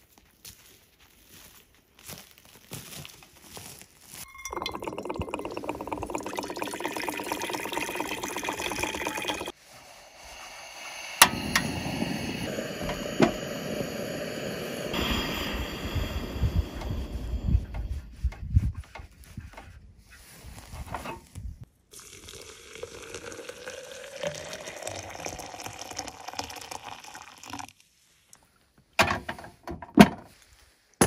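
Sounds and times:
footsteps on forest floor: 0.0s - 4.3s
water pouring into pot: 4.3s - 16.8s, 21.9s - 27.8s
burning gas hiss: 4.8s - 18.0s.

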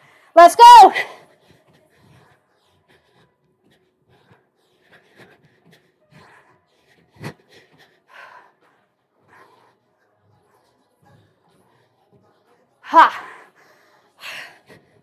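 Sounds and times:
woman breathing hard: 0.0s - 0.4s, 1.0s - 10.1s.

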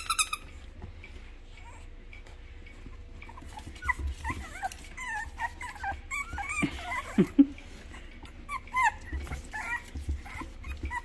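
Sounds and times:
puppies whimpering and yipping: 2.8s - 11.0s
puppy yelps: 3.3s - 7.3s, 8.5s - 11.0s.

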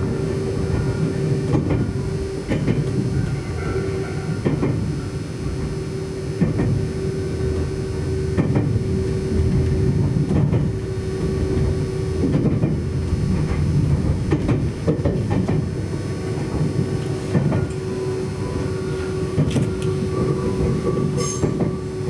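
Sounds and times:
train rumble inside carriage: 0.0s - 22.0s
wheels clacking over rail joints: 11.5s - 15.8s.

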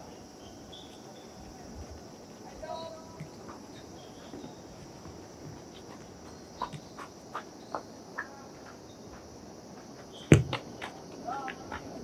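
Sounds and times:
crickets chirping: 0.0s - 12.0s
football being kicked: 10.3s - 10.6s.

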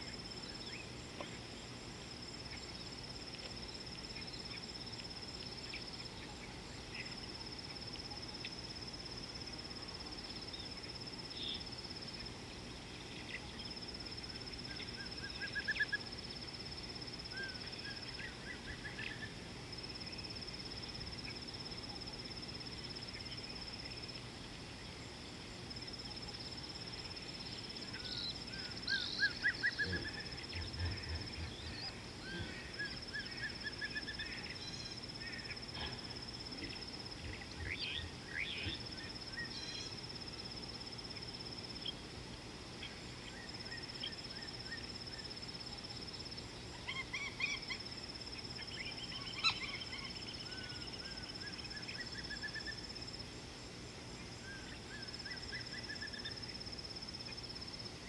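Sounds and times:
insect trilling: 25.9s - 40.1s, 46.8s - 53.0s.

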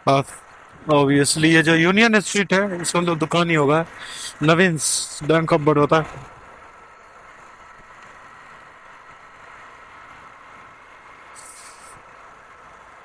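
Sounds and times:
motorcycle engine cruising: 0.0s - 13.0s
short hiss: 3.9s - 4.4s, 11.3s - 12.1s.

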